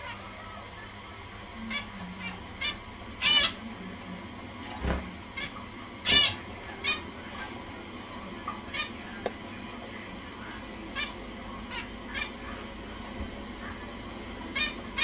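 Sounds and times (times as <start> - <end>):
finch nasal calls: 5.4 - 7.6.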